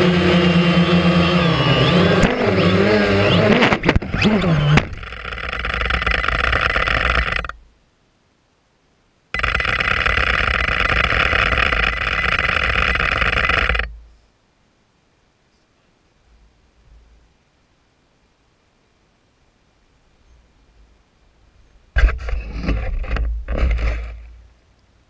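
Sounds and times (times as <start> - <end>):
drone motors whining: 0.0 - 7.6, 9.4 - 14.0
harsh buzz with high whine: 0.0 - 7.7, 9.3 - 14.2
drone crashing clatter: 3.4 - 7.6, 9.4 - 14.0.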